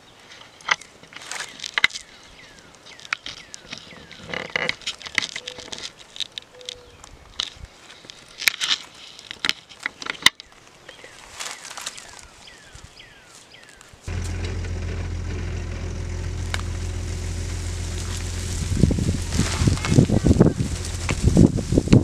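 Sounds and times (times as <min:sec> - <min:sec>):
bark and twigs crackling: 0:00.6 - 0:22.0
low engine drone: 0:14.1 - 0:22.0.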